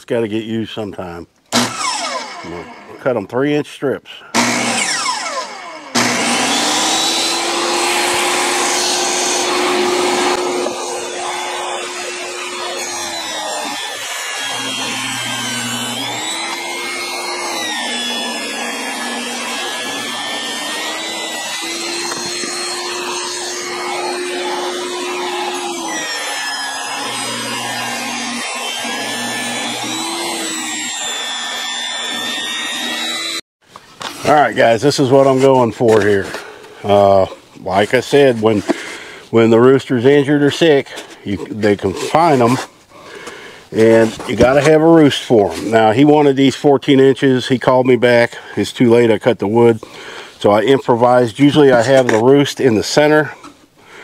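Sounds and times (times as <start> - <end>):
table saw ripping board: 1.5 - 2.6, 4.4 - 34.3.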